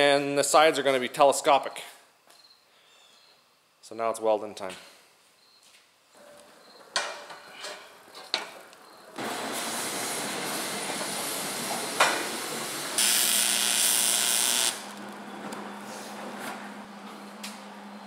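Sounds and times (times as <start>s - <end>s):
arc welding hiss: 9.2s - 15.0s
low electric hum: 11.7s - 18.0s.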